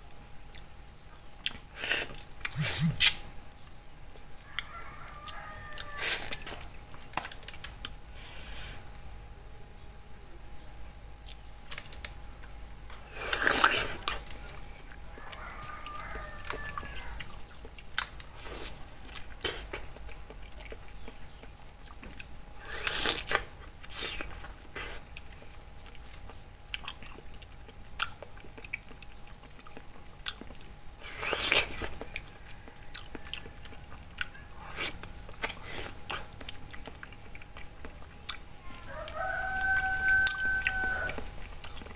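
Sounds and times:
mouth clicks and smacks: 0:01.4 - 0:04.7
wet bites and chewing: 0:11.2 - 0:41.9.

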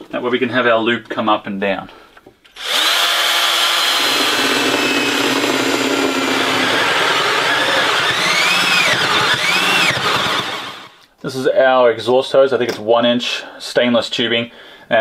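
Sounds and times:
drill cutting through wood: 0:02.5 - 0:11.0.

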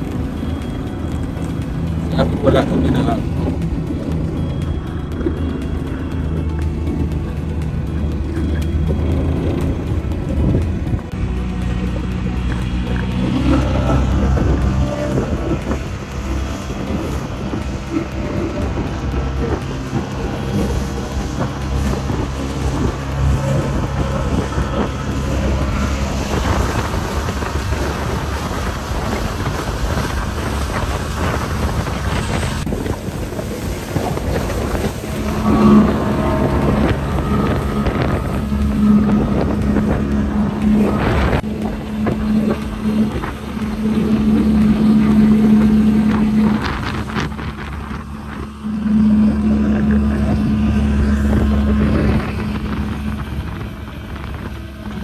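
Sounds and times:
outboard motor running: 0:00.0 - 0:55.0
wind buffeting microphone: 0:00.0 - 0:55.0.

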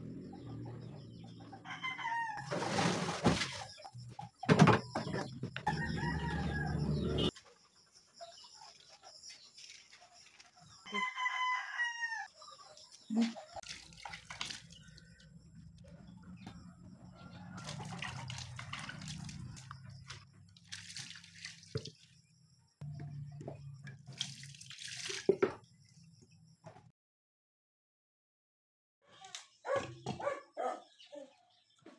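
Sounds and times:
rooster crowing: 0:01.6 - 0:02.5, 0:05.6 - 0:07.3, 0:10.8 - 0:12.3.

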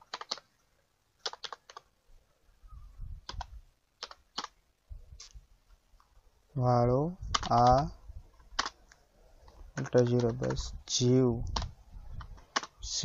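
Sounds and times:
computer keyboard keystrokes: 0:00.0 - 0:00.4, 0:01.2 - 0:01.8, 0:03.3 - 0:04.5, 0:07.3 - 0:07.8, 0:09.8 - 0:10.6, 0:11.4 - 0:12.7.

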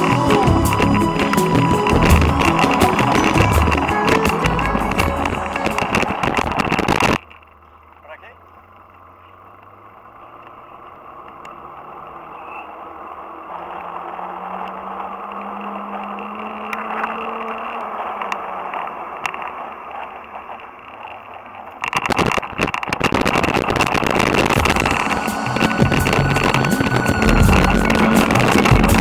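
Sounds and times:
motor droning: 0:00.0 - 0:06.9, 0:23.2 - 0:29.0.

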